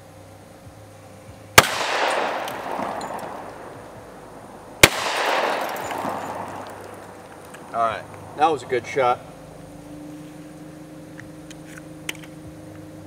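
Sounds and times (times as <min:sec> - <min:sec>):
gunshots with echo: 0:01.6 - 0:07.4.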